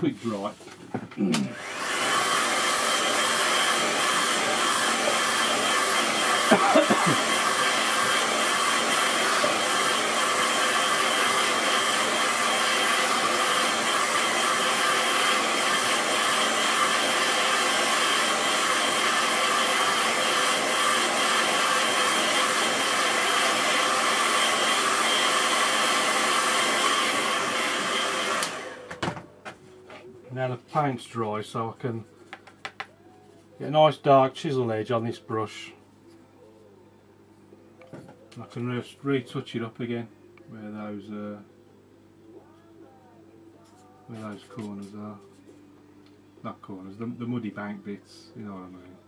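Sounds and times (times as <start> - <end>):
hair dryer blowing: 0.0 - 29.3.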